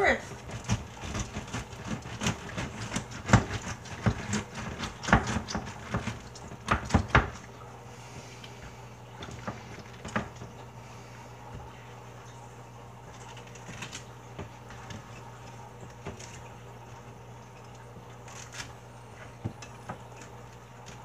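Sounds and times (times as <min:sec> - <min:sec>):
pineapple wedger knocks and crunches: 0:00.3 - 0:07.4.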